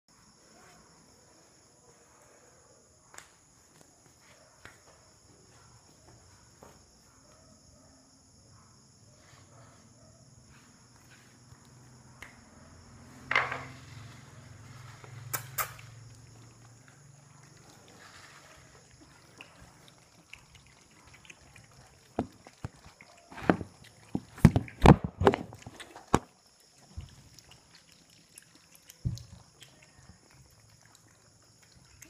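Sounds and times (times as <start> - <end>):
crickets chirring: 0.1 - 32.0
puppies padding on tiled floor: 13.2 - 27.3, 28.9 - 30.6.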